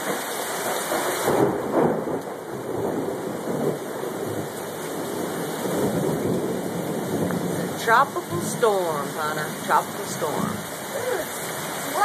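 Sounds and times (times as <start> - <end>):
heavy rain pouring: 0.0 - 12.0.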